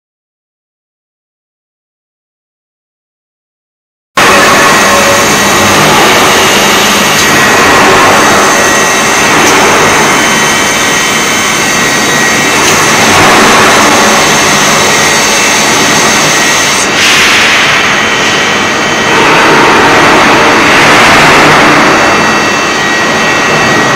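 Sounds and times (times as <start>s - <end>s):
industrial machinery hiss: 4.2s - 22.0s
thin steady whining tones: 4.2s - 23.9s.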